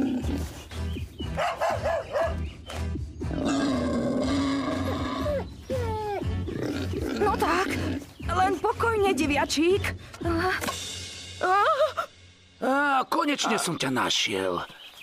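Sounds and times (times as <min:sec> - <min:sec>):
background music with steady beat: 0:00.0 - 0:12.7
cartoon animal growl: 0:03.4 - 0:05.4.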